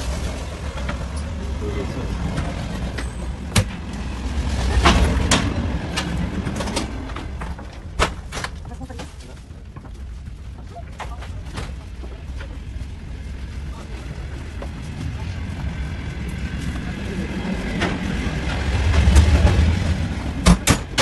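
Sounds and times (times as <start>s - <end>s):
train rumbling: 0.0s - 21.0s
doors knocking and clanking: 17.7s - 21.0s.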